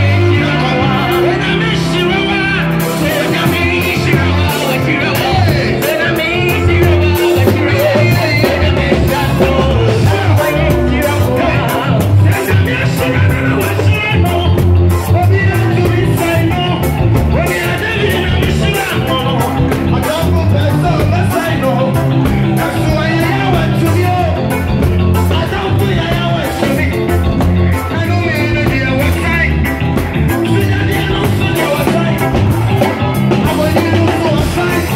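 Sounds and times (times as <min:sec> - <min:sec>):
people singing gospel: 0:00.0 - 0:14.6
amplified gospel music: 0:00.0 - 0:34.9
bass line: 0:00.0 - 0:34.9
drum kit beat: 0:00.0 - 0:34.9
person singing into a microphone: 0:00.0 - 0:34.9.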